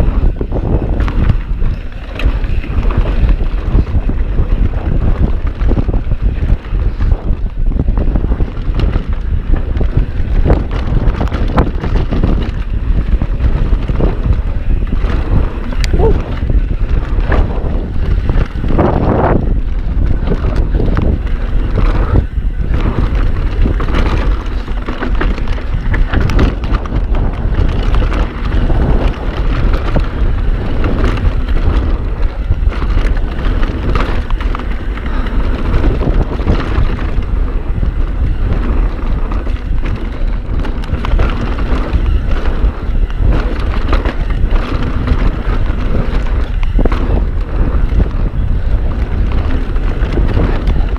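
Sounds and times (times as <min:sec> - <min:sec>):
bike clicking and rattling: 0:00.0 - 0:50.9
tyres rumbling on dirt: 0:00.0 - 0:50.9
wind buffeting microphone: 0:00.0 - 0:50.9.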